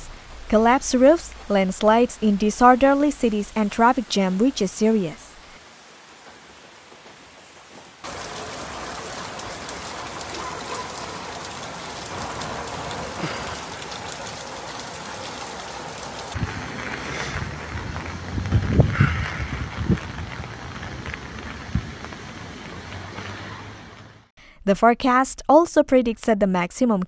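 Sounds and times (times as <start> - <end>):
rain falling on flooded street: 0.0 - 24.3
low rumble: 16.4 - 23.2.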